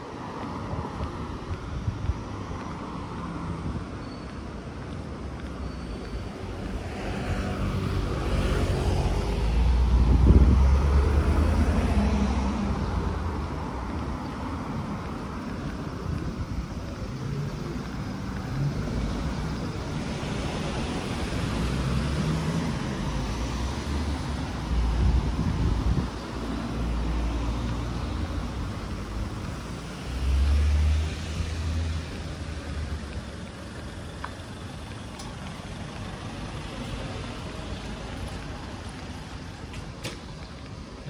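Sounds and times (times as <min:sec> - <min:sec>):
street background noise: 0:00.0 - 0:41.0
car passing by: 0:06.4 - 0:16.3, 0:17.2 - 0:33.2.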